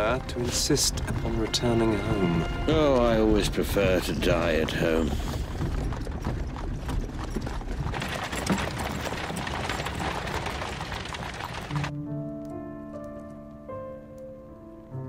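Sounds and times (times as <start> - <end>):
horse hooves clip-clopping: 0.0 - 11.9
wheels rumbling on dirt road: 0.0 - 11.9.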